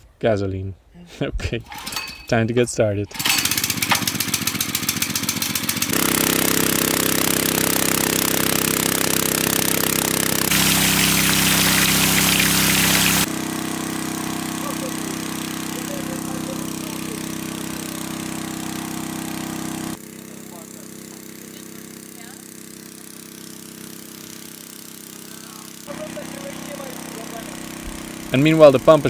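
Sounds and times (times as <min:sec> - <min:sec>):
small gasoline pump engine: 0:03.1 - 0:29.0
water gushing from hose: 0:05.9 - 0:20.0, 0:22.4 - 0:29.0.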